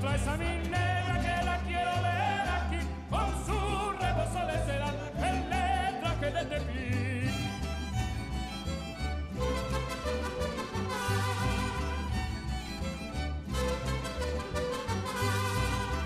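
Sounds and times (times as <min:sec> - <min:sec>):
person singing with vibrato: 0:00.0 - 0:07.6
steady bass line: 0:00.0 - 0:16.0.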